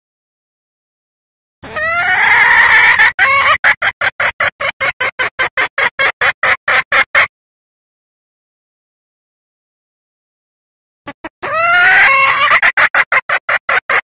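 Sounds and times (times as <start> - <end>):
hen calling and clucking: 1.6 - 7.3, 11.1 - 14.0.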